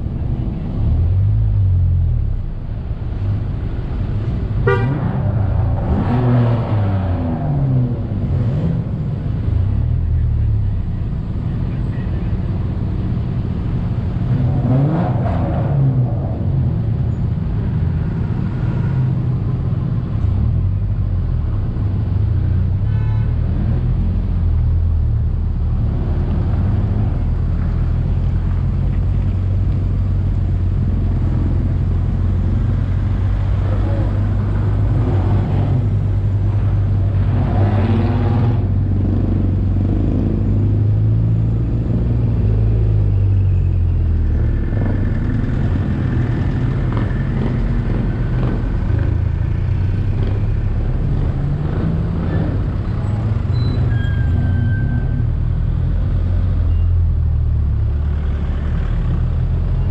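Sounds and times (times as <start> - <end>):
tyre and road noise: 0.0 - 59.9
vehicle engine droning: 0.0 - 59.9.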